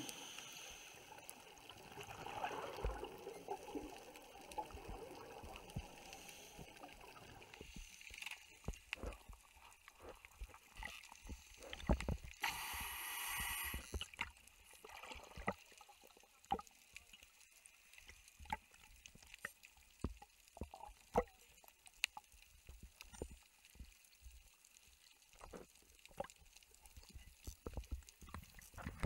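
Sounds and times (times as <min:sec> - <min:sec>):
faint underwater clicks and pops: 0:00.0 - 0:29.0
underwater bubbles rushing: 0:01.4 - 0:07.7.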